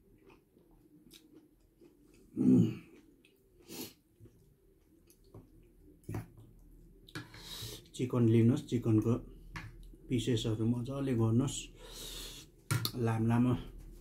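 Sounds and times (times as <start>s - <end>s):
person chewing: 0.0s - 6.0s
person breathing: 7.2s - 7.9s, 11.7s - 12.6s.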